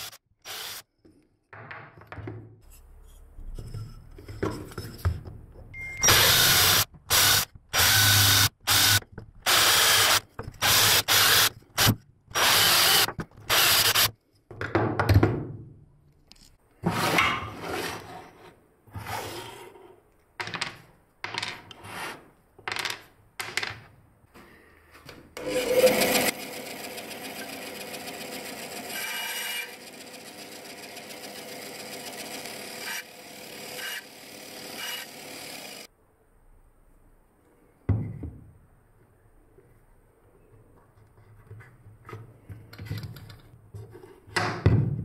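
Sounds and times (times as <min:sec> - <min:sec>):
bandsaw cutting wood: 0:00.0 - 0:00.8, 0:06.1 - 0:14.1, 0:25.4 - 0:35.9.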